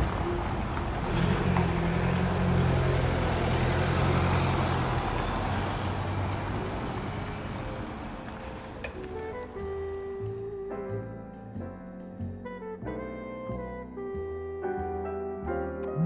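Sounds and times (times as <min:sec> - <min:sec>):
tyres rolling on cobblestones: 0:00.0 - 0:10.6.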